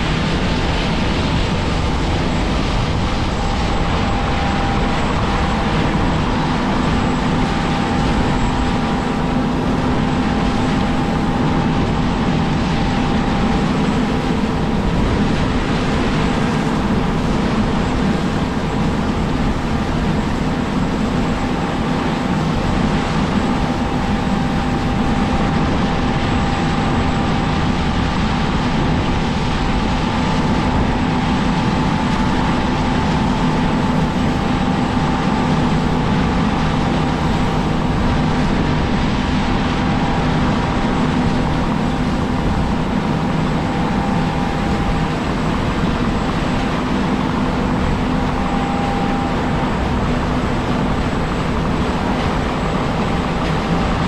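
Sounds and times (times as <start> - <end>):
machinery high whine: 0.0 - 54.0.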